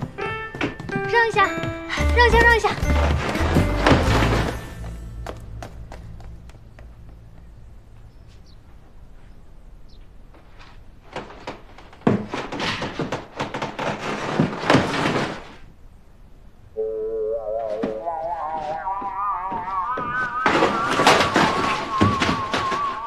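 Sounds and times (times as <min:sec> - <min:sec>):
thumps and bangs on cardboard box: 0:12.0 - 0:15.4.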